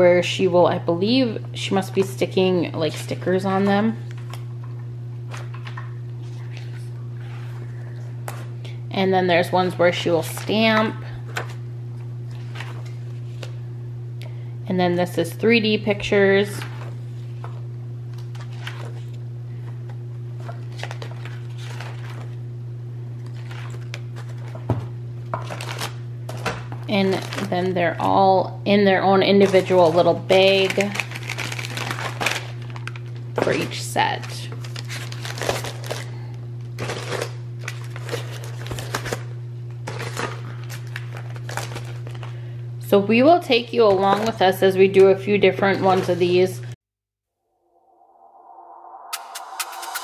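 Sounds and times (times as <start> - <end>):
steady low hum: 0.0 - 46.8, 47.6 - 50.0
paper pages turning: 12.3 - 13.6, 16.6 - 19.2, 20.4 - 22.4, 23.2 - 24.7, 34.5 - 36.0.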